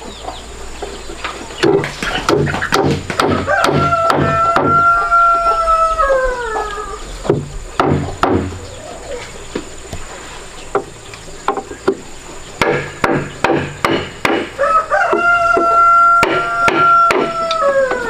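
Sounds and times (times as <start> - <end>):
rooster crowing: 3.1 - 7.2, 14.5 - 18.0.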